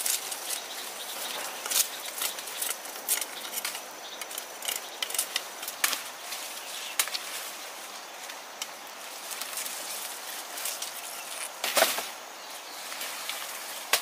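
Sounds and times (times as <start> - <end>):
cane stalk cracking: 0.0 - 7.5
dry leaves rustling and crackling: 0.0 - 14.0.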